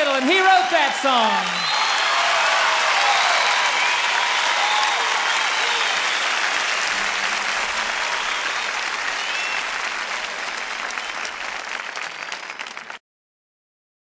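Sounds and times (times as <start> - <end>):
audience applauding and cheering: 0.0 - 13.0
whistles: 1.6 - 2.1, 3.2 - 6.5, 7.8 - 9.9, 10.8 - 12.9.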